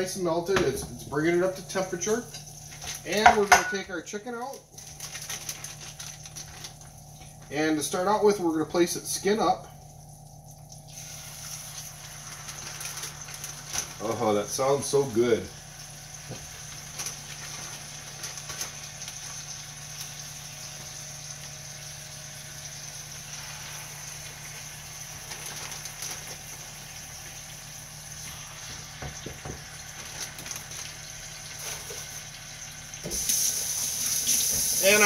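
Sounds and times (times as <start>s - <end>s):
chicken sizzling in butter: 10.8s - 35.0s.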